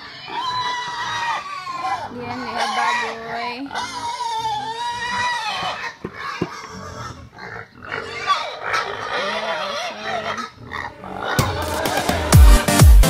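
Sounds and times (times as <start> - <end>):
pigs grunting: 0.0 - 12.0
electronic dance music: 11.4 - 13.0.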